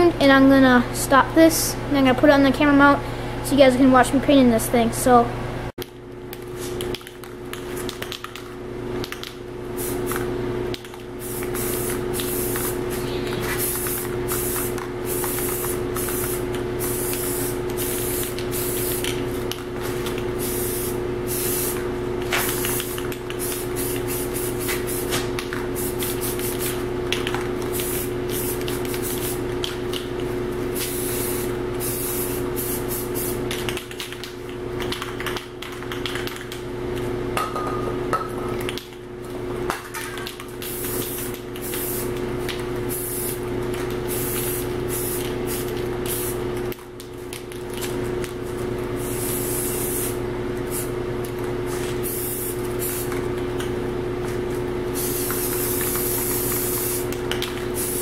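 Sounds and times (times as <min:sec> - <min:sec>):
steady hum: 0:00.0 - 0:58.0
spray paint can hissing: 0:09.8 - 0:10.2, 0:11.2 - 0:19.2, 0:20.4 - 0:21.8, 0:22.4 - 0:25.2, 0:25.8 - 0:26.8, 0:27.7 - 0:29.4, 0:30.7 - 0:34.0, 0:40.6 - 0:42.1, 0:42.9 - 0:43.4, 0:44.1 - 0:46.4, 0:49.0 - 0:50.9, 0:52.0 - 0:53.2, 0:55.0 - 0:58.0.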